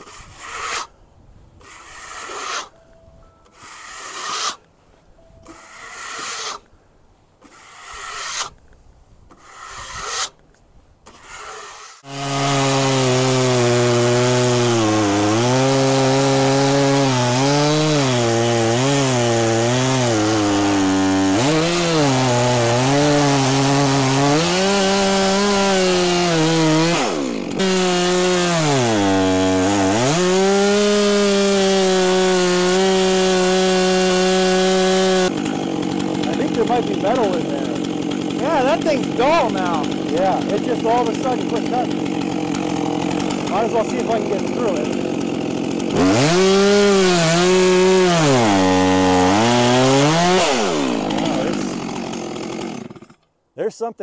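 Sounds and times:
chainsaw cutting log: 0:00.0 - 0:00.9, 0:01.6 - 0:02.8, 0:03.5 - 0:04.6, 0:05.4 - 0:06.7, 0:07.4 - 0:08.6, 0:09.3 - 0:10.4, 0:11.0 - 0:53.3
hand brush sweeping sawdust: 0:00.0 - 0:00.9, 0:01.6 - 0:02.8, 0:03.5 - 0:04.6, 0:05.5 - 0:06.6, 0:07.4 - 0:08.6, 0:09.3 - 0:10.4, 0:11.1 - 0:12.1.

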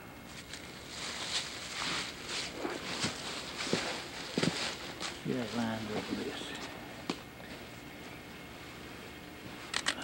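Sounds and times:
sharp clicks: 0:09.7 - 0:10.0.

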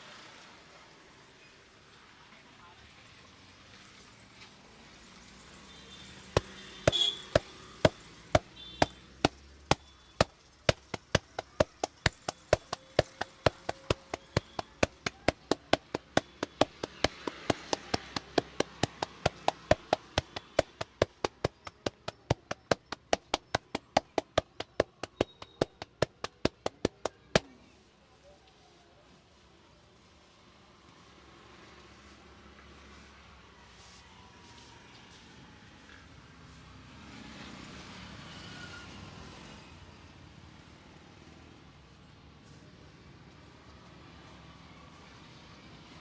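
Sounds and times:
hands smacking a back: 0:06.4 - 0:27.5.

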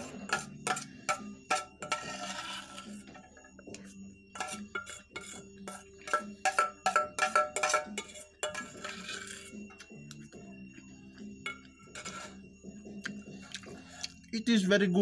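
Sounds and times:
metal spoon clinking on steel bowl: 0:00.0 - 0:02.8, 0:04.4 - 0:09.5.

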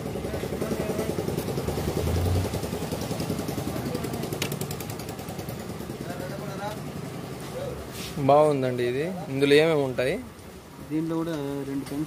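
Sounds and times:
vehicle engine idling: 0:00.0 - 0:07.9.

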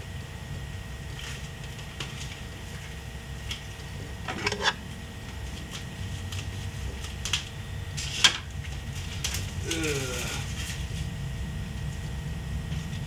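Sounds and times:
steady low hum: 0:00.0 - 0:13.0
plastic wrap crinkling and tearing: 0:05.5 - 0:11.1.

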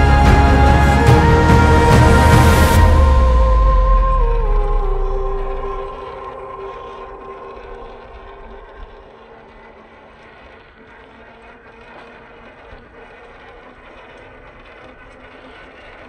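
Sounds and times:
outdoor noise: 0:00.0 - 0:16.0
small electric motor whirring: 0:05.1 - 0:16.0.

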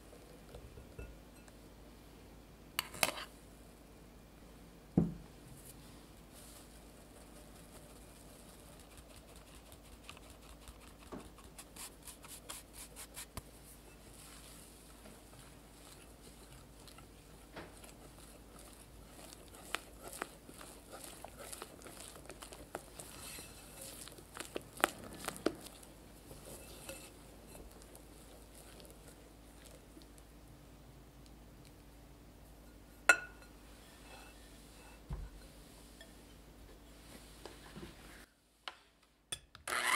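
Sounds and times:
whisk scraping glass bowl: 0:15.3 - 0:29.0.

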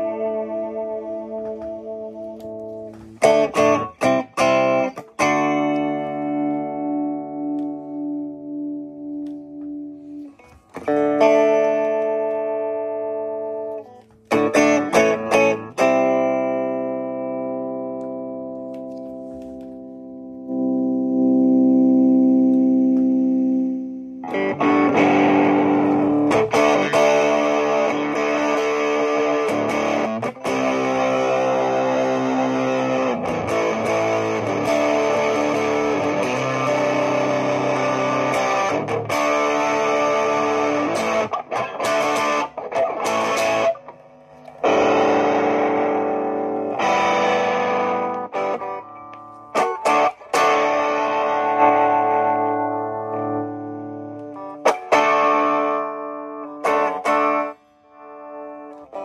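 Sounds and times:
electric guitar chords: 0:00.0 - 0:59.0.

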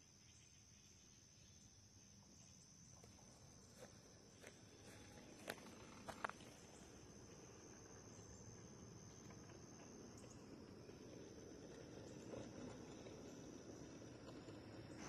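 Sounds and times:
crickets trilling: 0:00.0 - 0:15.0
railroad wheels clicking: 0:03.0 - 0:15.0.

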